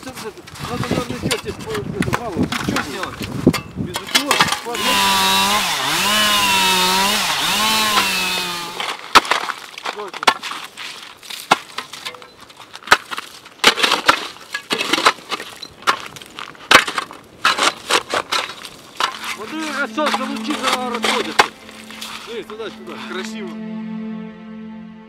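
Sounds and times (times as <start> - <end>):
ice chisel striking ice: 7.8 - 21.6
shovels scraping wet slush: 17.4 - 23.3
droning tone of wavering pitch: 19.8 - 25.0.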